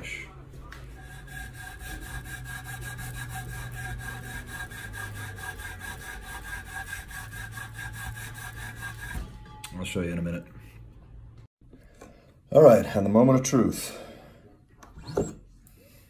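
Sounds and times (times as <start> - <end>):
polishing strip rubbing a ring: 0.9 - 9.2.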